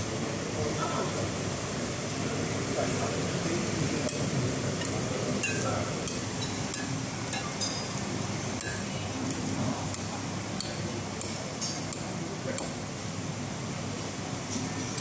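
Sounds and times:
steady background hum: 0:00.0 - 0:15.0
cutlery clinking against plates: 0:04.0 - 0:12.7.

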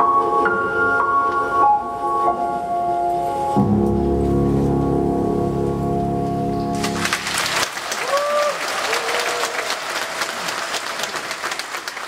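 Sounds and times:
audience applause: 0:06.7 - 0:12.0.

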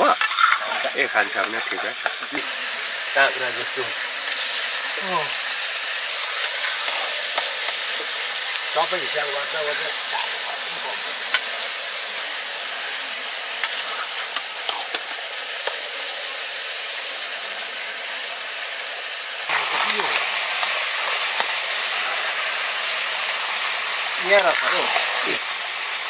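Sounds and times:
meat sizzling in a wok: 0:00.0 - 0:26.0
metal spatula scraping a pan: 0:00.1 - 0:01.0.

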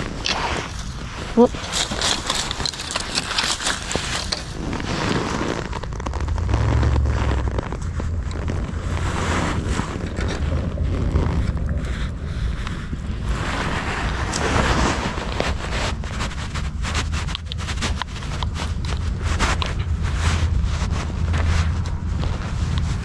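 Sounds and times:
rustling and crackling: 0:00.0 - 0:23.0
wind buffeting microphone: 0:03.8 - 0:23.0.

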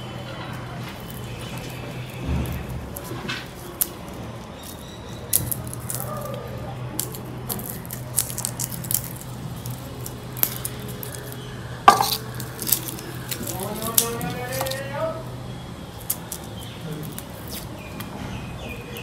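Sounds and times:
utensils clicking and tapping: 0:07.0 - 0:14.9.

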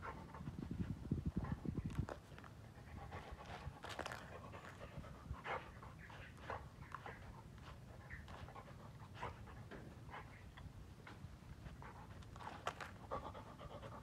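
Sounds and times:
dog panting: 0:02.5 - 0:10.6, 0:11.5 - 0:14.0.

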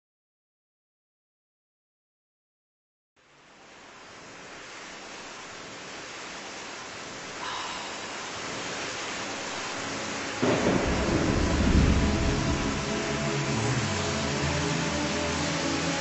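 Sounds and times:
heavy rain: 0:03.2 - 0:16.0
deep rumble of thunder: 0:10.4 - 0:13.6.

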